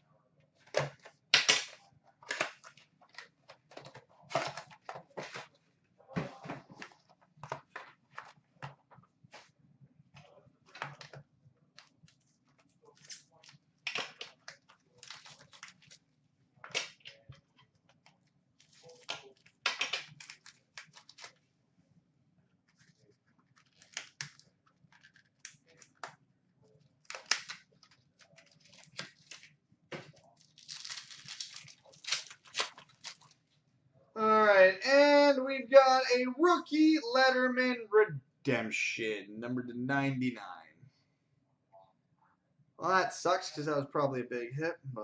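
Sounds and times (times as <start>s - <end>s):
wrapper crackling and tearing: 14.4s - 16.0s, 30.3s - 33.4s
wrapper rustling: 27.1s - 33.5s.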